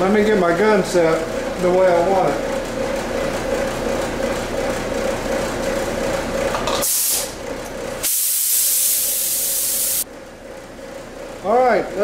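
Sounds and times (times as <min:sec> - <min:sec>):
paint spray gun hissing bursts: 0:08.0 - 0:10.0.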